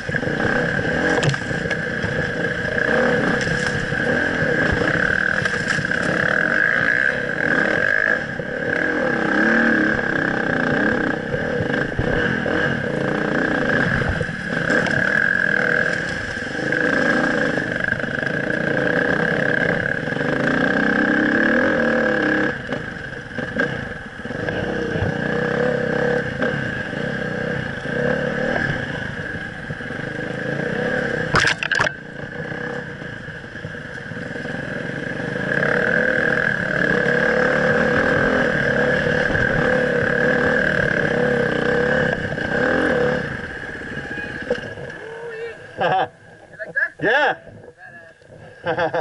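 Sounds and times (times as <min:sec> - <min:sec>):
dirt bike engine revving: 0:00.0 - 0:46.1
sharp clatter: 0:31.2 - 0:32.0.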